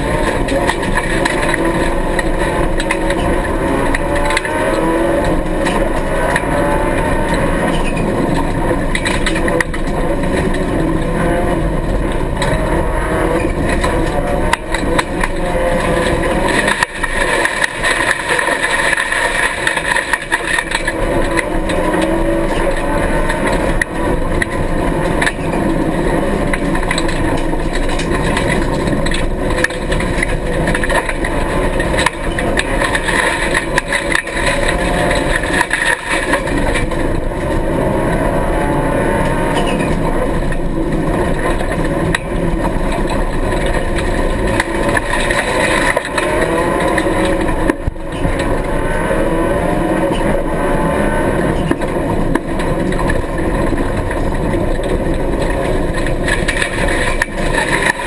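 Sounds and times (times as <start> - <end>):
knocks and rattles: 0.0 - 58.0
rally car engine revving: 0.0 - 58.0.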